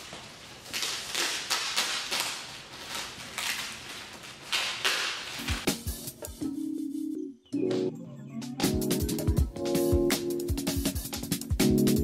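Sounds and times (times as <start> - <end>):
plastic wrapping crinkling: 0.0 - 5.7.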